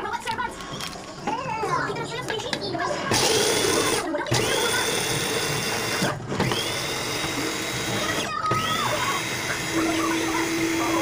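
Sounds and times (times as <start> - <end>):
food processor motor grinding: 3.1 - 11.0.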